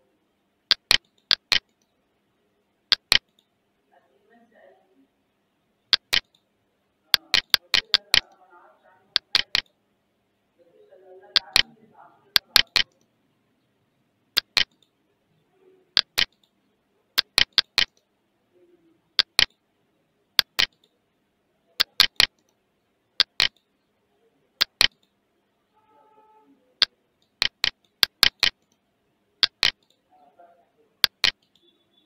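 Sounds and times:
computer mouse button clicks: 0:00.7 - 0:01.7, 0:02.9 - 0:03.5, 0:05.9 - 0:06.4, 0:07.2 - 0:08.3, 0:09.2 - 0:09.7, 0:11.4 - 0:11.7, 0:12.4 - 0:13.0, 0:14.4 - 0:14.9, 0:16.0 - 0:16.5, 0:17.2 - 0:18.0, 0:19.2 - 0:19.5, 0:26.8 - 0:28.8, 0:29.4 - 0:30.0, 0:31.0 - 0:31.7.

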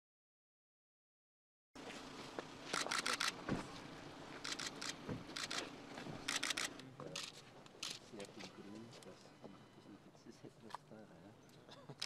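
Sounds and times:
camera shutter clicks: 0:02.7 - 0:03.4, 0:04.4 - 0:05.7, 0:06.3 - 0:08.0.

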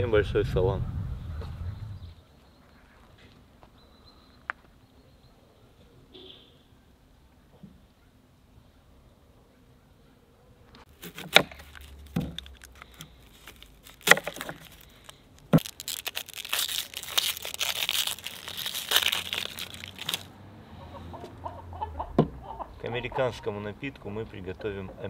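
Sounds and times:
onion skin crackling and tearing: 0:10.9 - 0:20.3.

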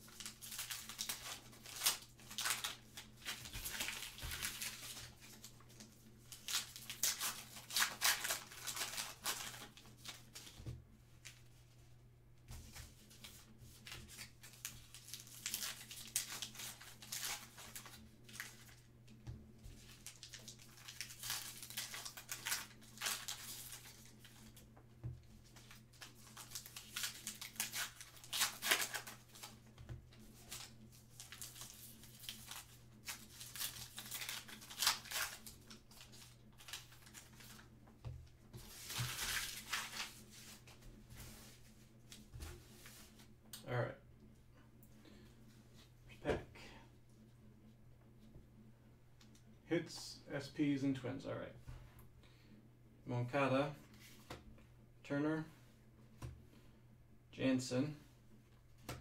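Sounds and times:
card pack wrapper crinkling and tearing: 0:00.0 - 0:10.5, 0:14.1 - 0:18.8, 0:19.8 - 0:24.5, 0:25.5 - 0:29.6, 0:30.5 - 0:37.6, 0:38.6 - 0:40.2.

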